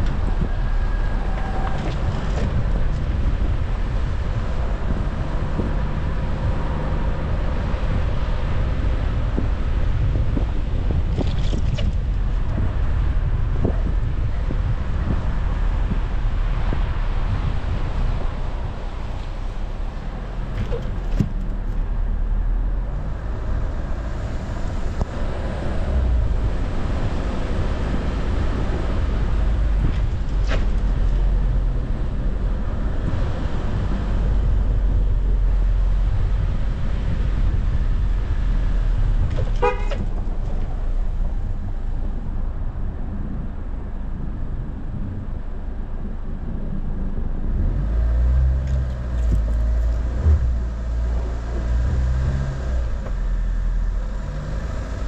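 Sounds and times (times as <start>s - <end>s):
car engine and tyres on snow: 0.0s - 55.0s
car horn toot: 39.6s - 40.1s.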